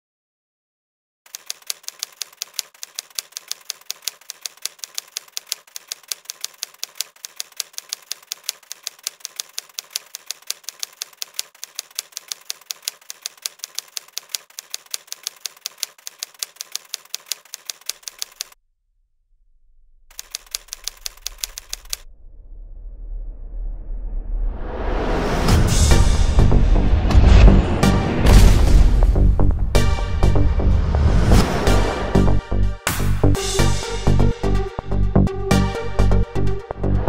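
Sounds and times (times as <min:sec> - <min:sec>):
typewriter key clicks: 0:01.3 - 0:18.6, 0:20.1 - 0:22.0.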